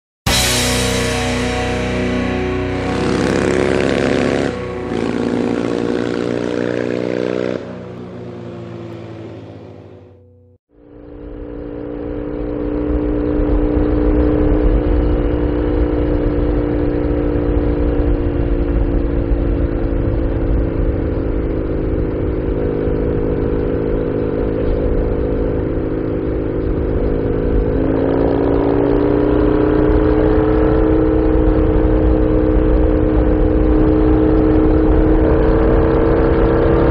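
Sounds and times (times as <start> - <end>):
intro music: 0.3 - 9.2
motorcycle engine running: 0.3 - 36.9
wind rush on microphone: 11.2 - 36.9.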